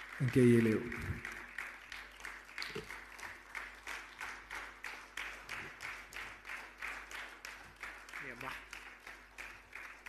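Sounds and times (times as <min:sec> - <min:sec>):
audience clapping in unison: 0:00.0 - 0:10.0.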